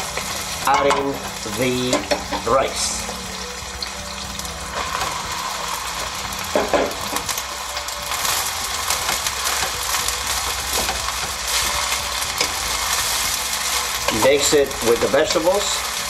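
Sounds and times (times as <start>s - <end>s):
spatula scraping and knocking wok: 0.0s - 2.9s, 4.7s - 16.0s
food sizzling in wok: 0.0s - 16.0s.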